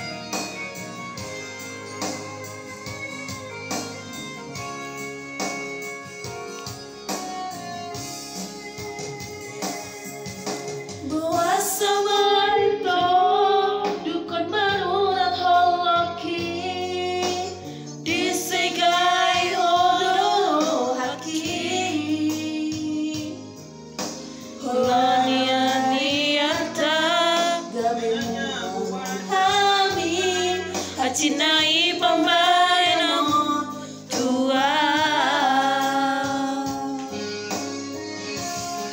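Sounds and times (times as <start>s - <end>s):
electronic keyboard backing track: 0.0s - 38.9s
woman singing with vibrato: 11.0s - 23.6s, 24.6s - 37.4s.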